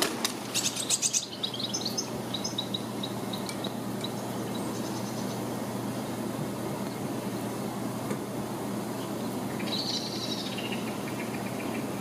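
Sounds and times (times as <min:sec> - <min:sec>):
low background hum: 0:00.0 - 0:12.0
small birds chirping: 0:00.5 - 0:06.2, 0:08.9 - 0:12.0.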